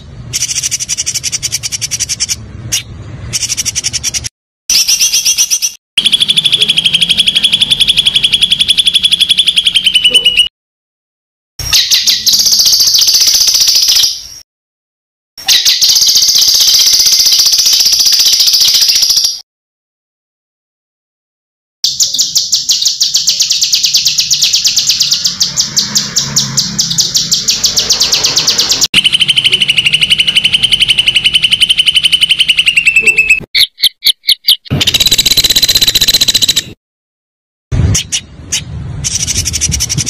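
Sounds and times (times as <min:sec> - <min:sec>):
songbird rattling trills: 0:15.5 - 0:19.4, 0:21.9 - 0:36.7.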